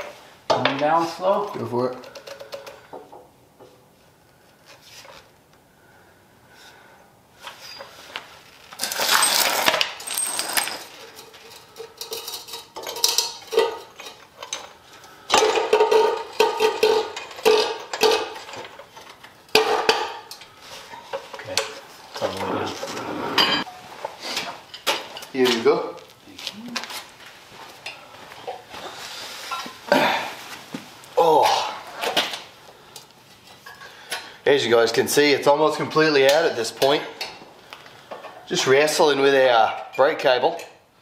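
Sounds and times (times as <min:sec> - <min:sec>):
metal parts clanking: 0:08.8 - 0:20.4.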